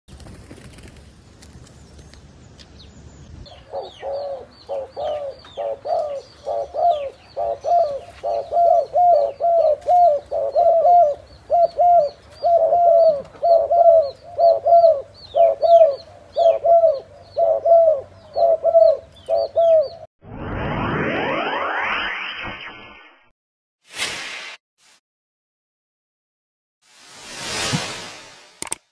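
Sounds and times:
doves cooing: 3.5 - 20.0.

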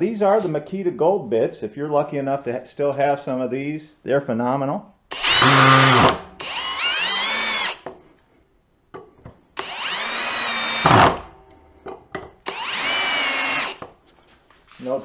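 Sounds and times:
cordless drill whining: 5.1 - 7.8, 9.6 - 11.3, 12.4 - 13.8.

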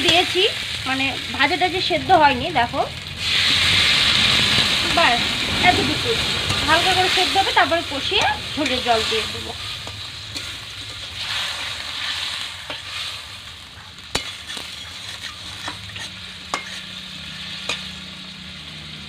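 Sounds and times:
potatoes sizzling in oil: 0.0 - 19.0
metal spatula scraping a pan: 5.7 - 18.1.

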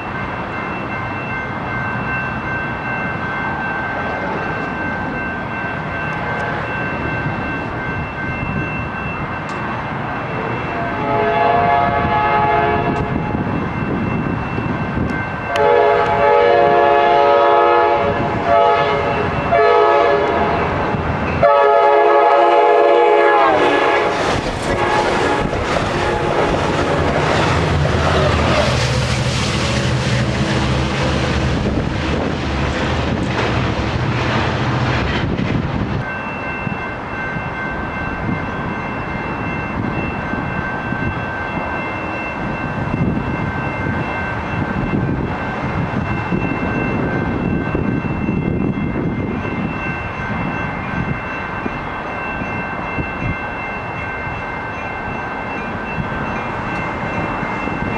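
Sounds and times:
train running noise: 0.0 - 57.9
train air horn blasts: 10.7 - 13.3, 15.5 - 20.6, 21.4 - 26.7.

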